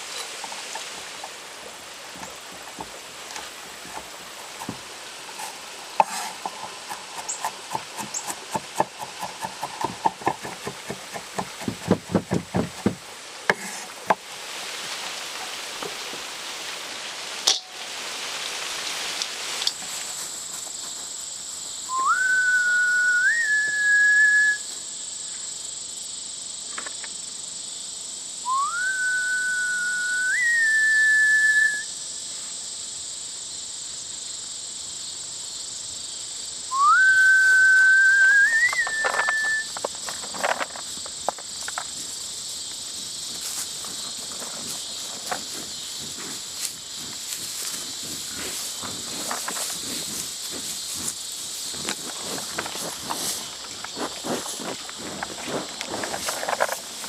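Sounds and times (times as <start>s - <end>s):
steady hiss: 0.0s - 57.0s
long whistled notes: 21.9s - 24.8s, 28.5s - 32.0s, 36.7s - 39.8s.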